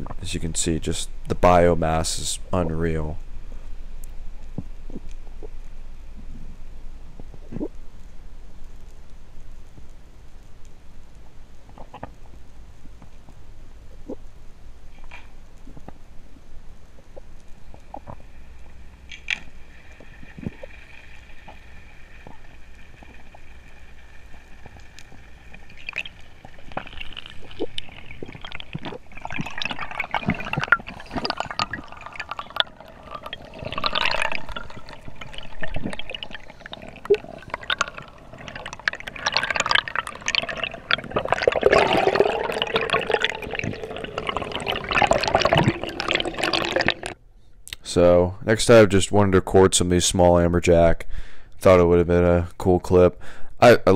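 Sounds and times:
water sloshing underwater: 16.9s - 47.2s.

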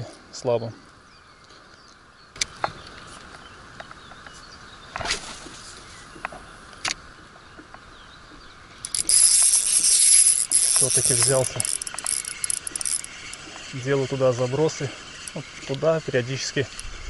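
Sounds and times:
spinning reel whirring: 8.8s - 17.0s.

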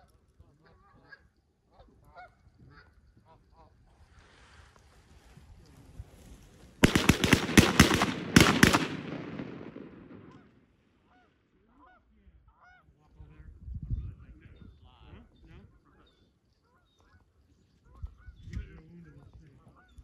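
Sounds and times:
shotgun fire echoing: 6.8s - 10.6s.

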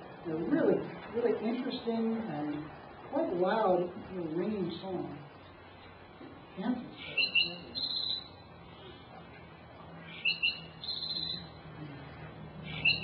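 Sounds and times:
sparrow song with trill: 6.9s - 8.9s, 10.0s - 11.6s, 12.7s - 13.0s.

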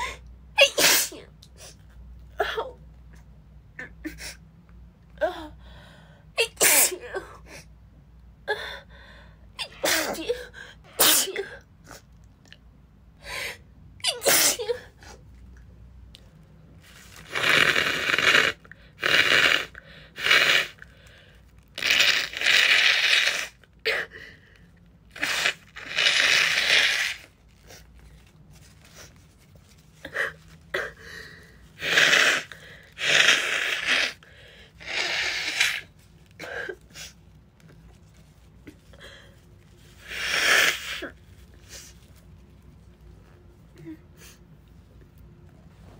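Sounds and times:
woman sneezing: 0.0s - 1.8s, 6.4s - 7.4s, 9.6s - 12.0s, 14.0s - 15.0s.

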